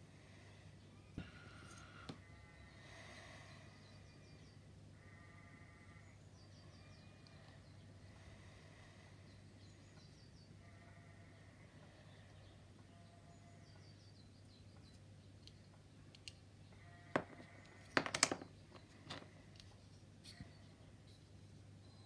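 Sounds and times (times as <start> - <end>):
faint birdsong: 0.0 - 22.0
low steady hum: 0.0 - 22.0
plastic parts clicking and tapping: 17.2 - 19.7.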